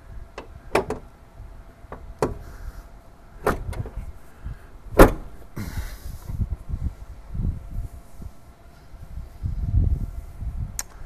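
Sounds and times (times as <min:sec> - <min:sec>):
hood latch thunk: 0:00.4 - 0:01.1, 0:01.9 - 0:02.6, 0:03.4 - 0:04.1, 0:04.9 - 0:05.4.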